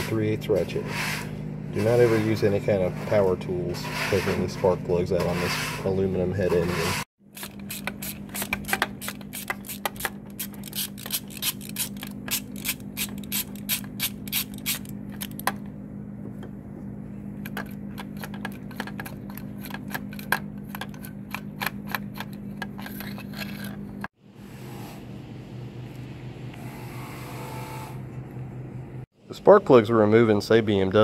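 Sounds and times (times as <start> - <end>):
hand ratchet clicking: 7.4 - 15.5.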